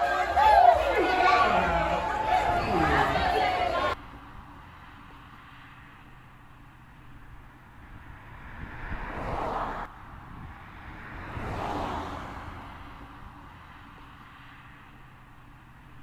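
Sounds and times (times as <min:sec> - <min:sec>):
swells of noise: 0:00.0 - 0:06.2.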